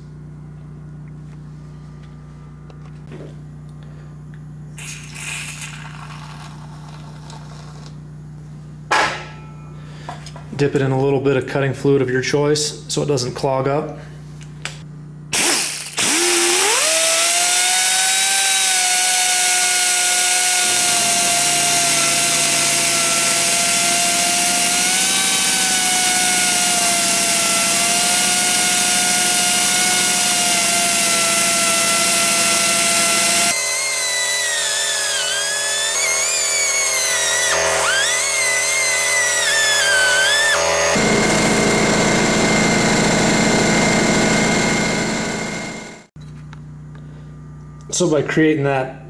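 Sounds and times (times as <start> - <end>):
die grinder whining: 4.8 - 8.0, 15.3 - 46.1
burr grinding metal: 15.4 - 46.0.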